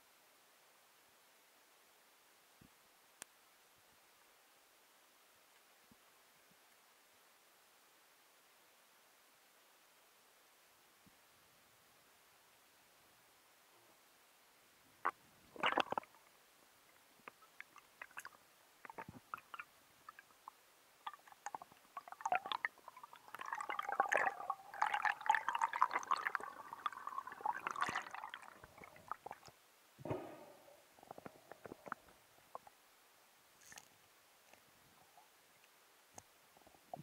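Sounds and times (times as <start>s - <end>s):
underwater gurgling and bubbling: 15.6s - 16.1s, 21.1s - 29.5s.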